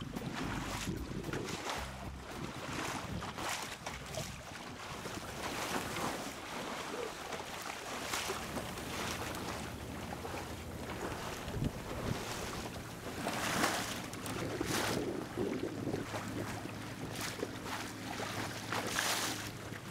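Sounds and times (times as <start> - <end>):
wind buffeting microphone: 0.0 - 6.2, 8.2 - 19.9
water splashing along boat hull: 0.0 - 19.9.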